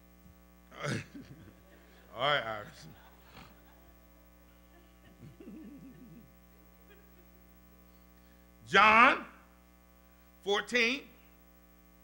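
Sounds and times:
electrical mains hum: 0:00.0 - 0:12.0
faint voice murmuring: 0:00.7 - 0:06.7.

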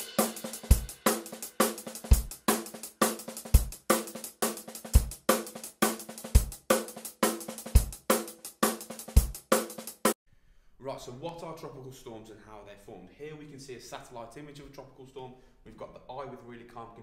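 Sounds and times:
cymbal and snare hits: 0:00.0 - 0:10.0.

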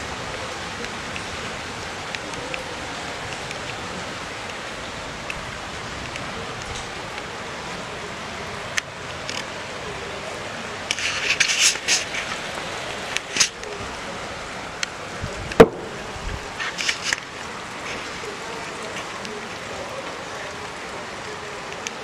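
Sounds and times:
floodwater running down street: 0:00.0 - 0:22.0
rain: 0:00.0 - 0:22.0
close rustles and clicks: 0:10.9 - 0:13.7, 0:15.5 - 0:19.4
sharp knock: 0:15.6 - 0:16.0.

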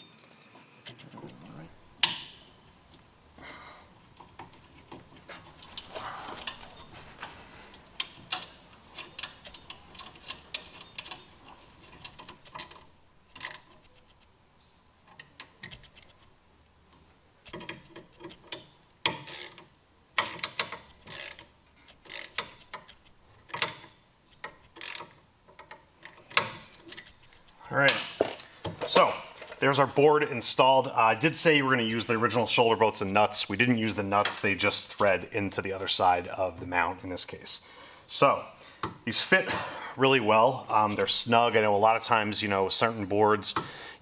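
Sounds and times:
hand ratchet clicking: 0:07.7 - 0:14.2, 0:17.4 - 0:27.5.

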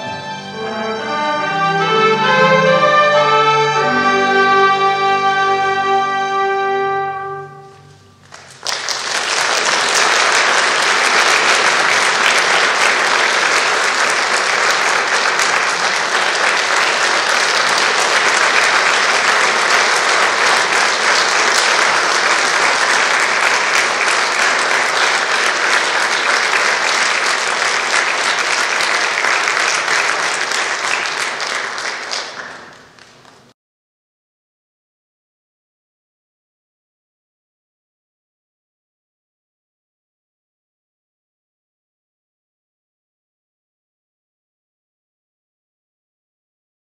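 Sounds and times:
string orchestra with piano: 0:00.0 - 0:09.0, 0:09.6 - 0:31.6
audience applause: 0:08.2 - 0:33.5.

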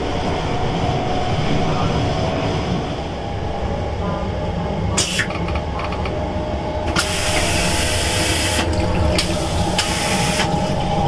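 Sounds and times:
low rumble of moving train: 0:00.0 - 0:11.0
toilet flushing with hissing rush: 0:05.0 - 0:05.6, 0:06.8 - 0:11.0.

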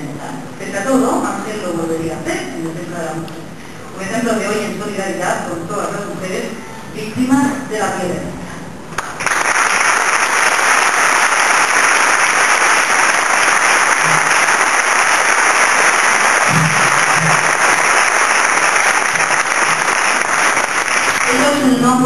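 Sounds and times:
audience applauding: 0:08.9 - 0:21.8.

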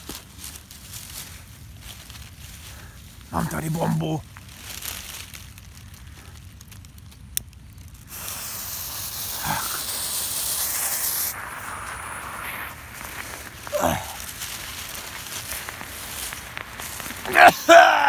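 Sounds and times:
smoke bomb fuse hissing: 0:07.8 - 0:18.0.

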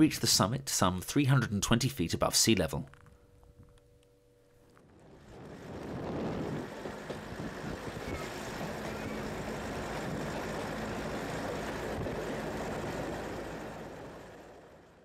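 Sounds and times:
train engine drone: 0:03.2 - 0:15.0
train rolling on track: 0:05.3 - 0:15.0.

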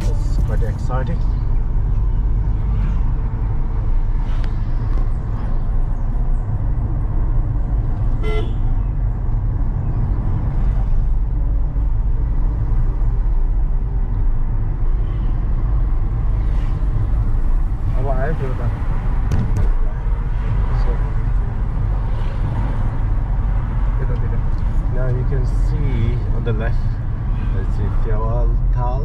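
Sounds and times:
vehicle horn toot: 0:08.2 - 0:08.7
car cabin rumble: 0:17.4 - 0:20.3.

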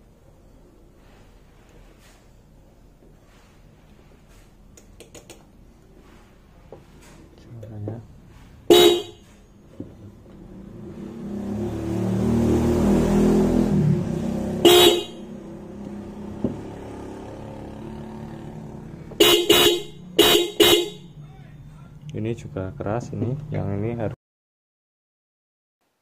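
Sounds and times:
car horn blasts: 0:08.7 - 0:09.4, 0:14.6 - 0:15.4, 0:19.2 - 0:21.4.

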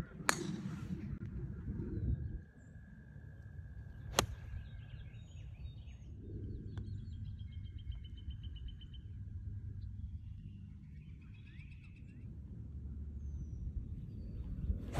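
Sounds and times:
low wind rumble: 0:00.0 - 0:14.9
golf club striking ball: 0:00.3 - 0:00.7
birds singing: 0:03.8 - 0:14.8.

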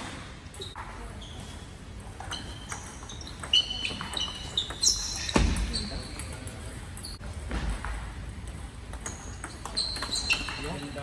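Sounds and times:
short high squeaks: 0:02.3 - 0:06.1, 0:09.6 - 0:11.0.

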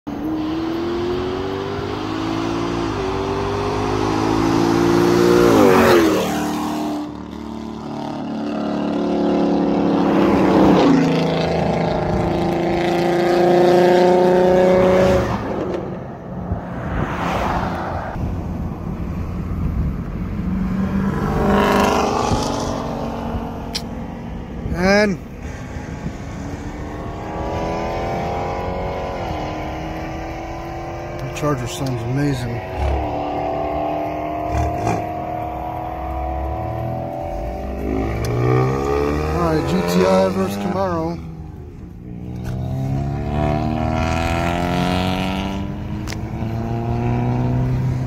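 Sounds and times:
car engines accelerating hard: 0:00.1 - 0:48.0
car passing by: 0:12.9 - 0:18.6.

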